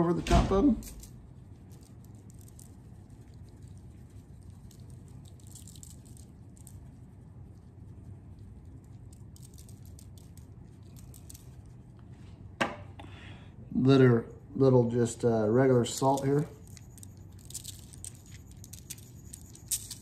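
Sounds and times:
low steady hum: 0.0 - 20.0
pepper grains pattering: 0.6 - 12.0, 15.4 - 20.0
pepper shaker rattling: 0.8 - 11.9, 15.8 - 20.0.

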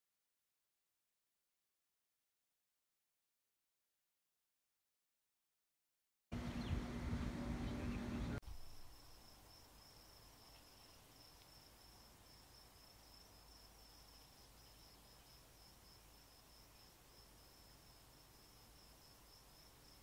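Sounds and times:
background hiss: 6.6 - 20.0
crickets trilling: 8.4 - 20.0.

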